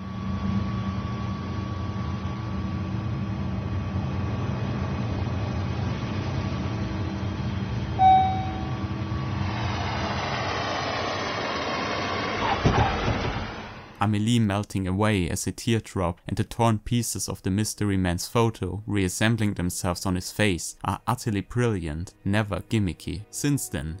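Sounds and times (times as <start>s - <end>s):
jet engines droning: 0.0s - 14.0s
jet passing low overhead: 0.0s - 14.0s
short chime: 8.0s - 8.8s.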